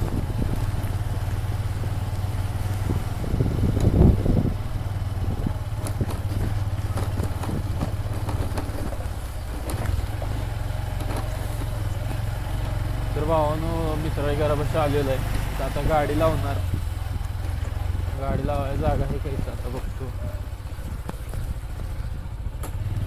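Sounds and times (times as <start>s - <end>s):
motorcycle engine running: 0.0s - 23.0s.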